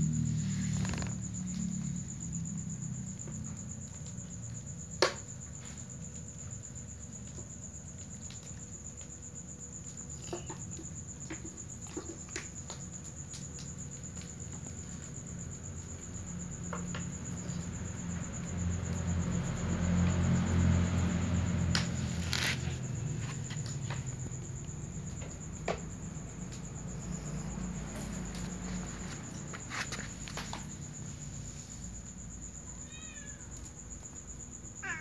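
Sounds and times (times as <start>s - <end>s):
crickets chirring: 0.0s - 35.0s.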